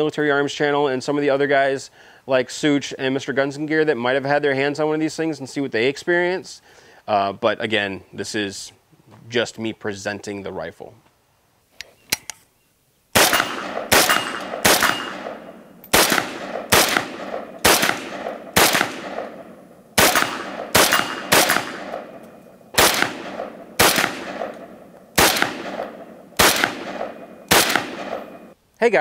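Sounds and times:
rifle shots echoing: 13.1 - 28.6.

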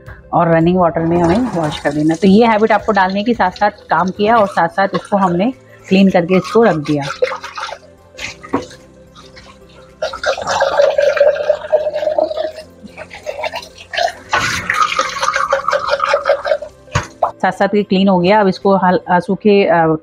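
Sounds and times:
faint background music: 0.0 - 20.0
water splashing into steel sink: 1.0 - 17.4
tap water pouring into plastic cup: 6.4 - 17.4.

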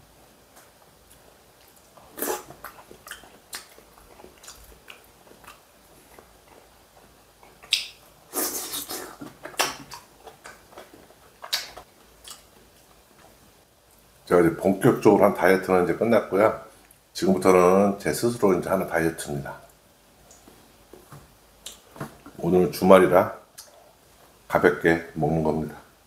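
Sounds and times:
man chewing and smacking: 0.4 - 14.1.

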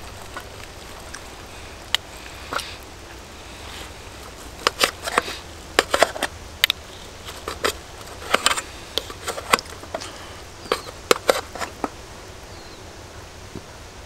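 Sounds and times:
knife and fork scraping a pan: 7.2 - 11.9.

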